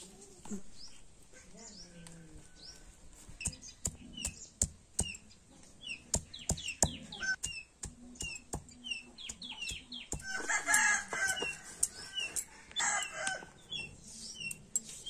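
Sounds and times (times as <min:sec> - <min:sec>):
small birds chirping: 0:00.0 - 0:15.0
stone pestle knocking on slab: 0:06.1 - 0:11.5.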